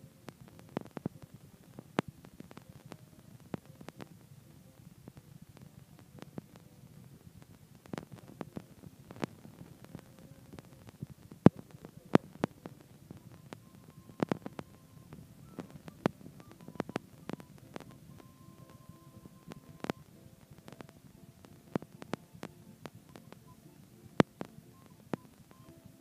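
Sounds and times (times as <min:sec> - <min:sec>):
faint low hum: 0:00.0 - 0:26.0
sharp clicks and pops: 0:00.0 - 0:26.0.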